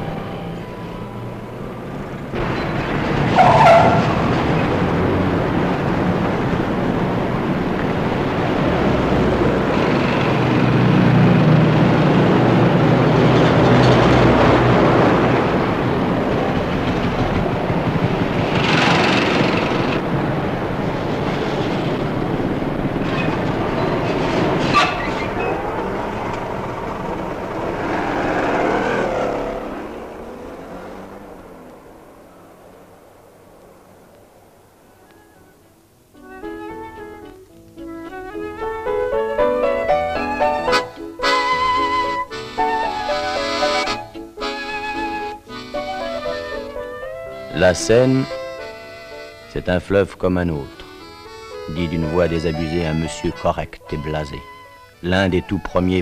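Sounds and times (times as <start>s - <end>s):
passing cars: 0.0s - 56.0s.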